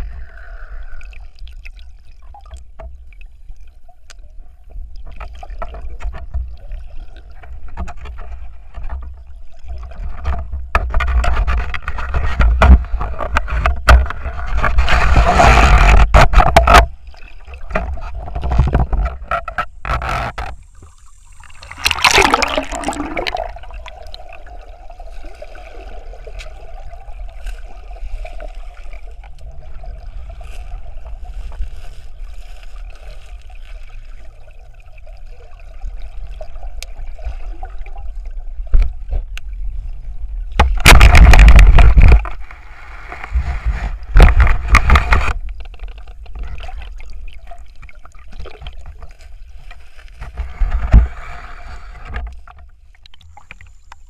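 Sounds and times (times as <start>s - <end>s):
underwater bubbling and gurgling: 0.0s - 54.0s
rushes of bubbles and splashing: 20.2s - 49.7s.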